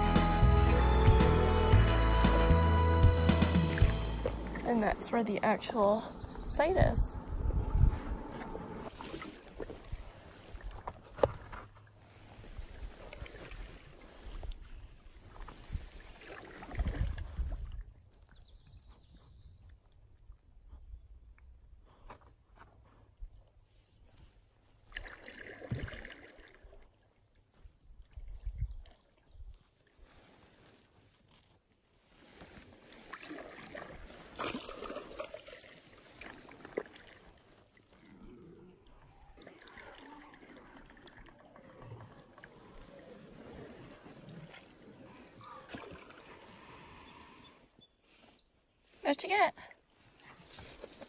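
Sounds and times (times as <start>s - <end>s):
water swishing along canoe hull: 3.4s - 21.0s, 22.8s - 51.0s
water dripping off paddle: 3.5s - 5.1s, 32.9s - 38.1s.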